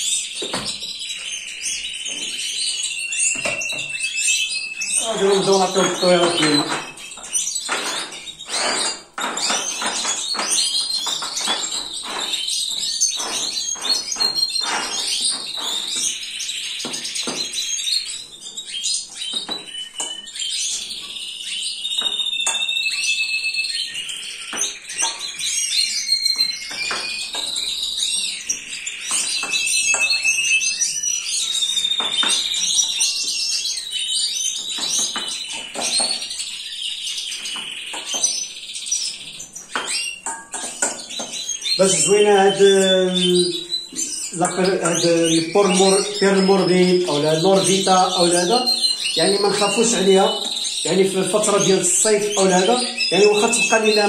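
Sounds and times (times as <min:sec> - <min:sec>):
birds chirping and singing: 0:00.0 - 0:54.0
plastic dishes clattering: 0:05.0 - 0:16.2, 0:34.6 - 0:36.4, 0:39.7 - 0:42.6.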